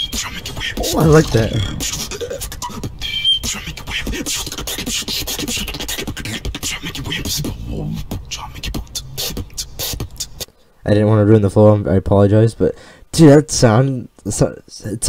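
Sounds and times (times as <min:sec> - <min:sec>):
beatboxing into microphone: 0:00.0 - 0:10.6.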